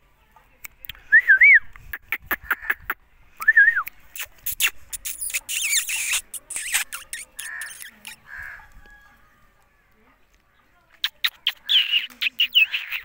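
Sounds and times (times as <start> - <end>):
parakeet scratchy high chatter: 4.2 - 8.6, 11.0 - 13.0.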